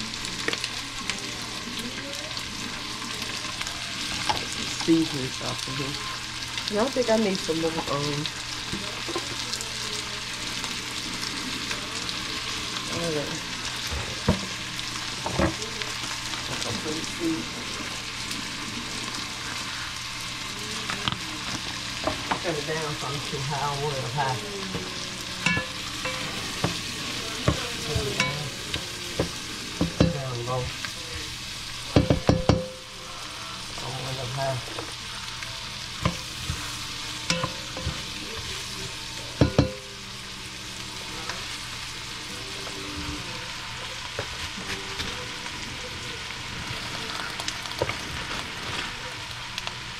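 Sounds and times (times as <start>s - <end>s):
grease sizzling in a pot: 0.0s - 49.9s
knocks and clatters against pot: 15.2s - 15.6s, 31.9s - 32.8s, 39.4s - 39.8s.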